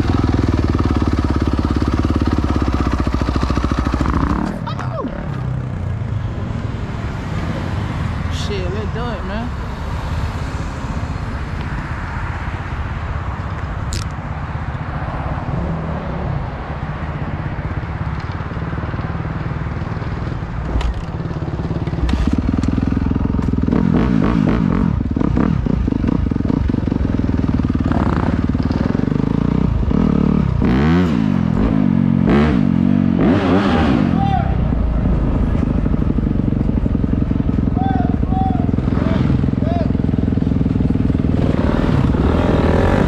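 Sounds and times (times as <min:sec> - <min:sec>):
dirt bike engine revving: 0:00.0 - 0:04.7, 0:20.6 - 0:43.0.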